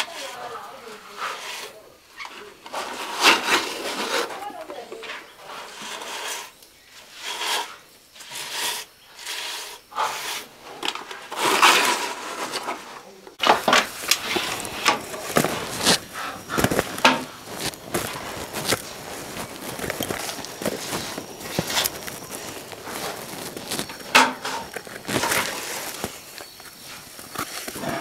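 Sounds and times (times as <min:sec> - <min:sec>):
hands scraping wet cement: 0:00.0 - 0:10.6, 0:11.2 - 0:28.0
rustle and snap of vines: 0:10.8 - 0:28.0.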